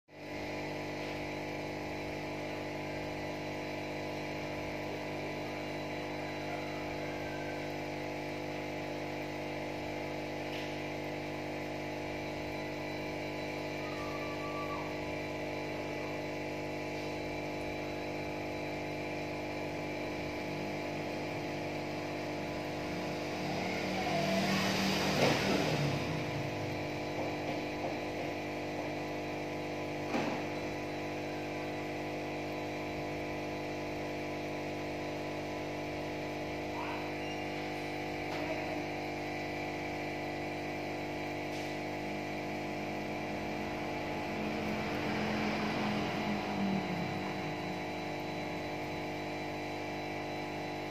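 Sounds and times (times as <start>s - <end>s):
aquarium air pump humming: 0.1s - 50.9s.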